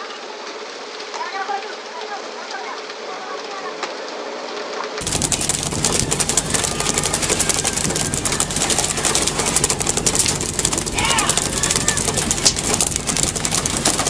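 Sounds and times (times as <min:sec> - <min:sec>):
boat engine rattling: 0:05.0 - 0:14.0
sea noise: 0:05.0 - 0:14.0.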